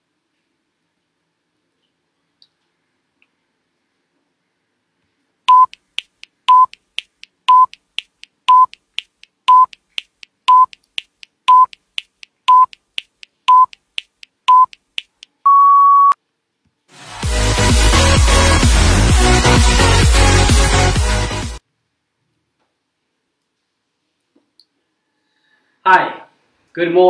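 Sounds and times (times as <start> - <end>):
electronic countdown beeps: 5.5 - 5.8, 6.5 - 6.8, 7.5 - 7.8, 8.5 - 8.8, 9.5 - 9.8, 10.5 - 10.8, 11.5 - 11.8, 12.5 - 12.8, 13.5 - 13.8, 14.5 - 14.8, 15.4 - 16.2.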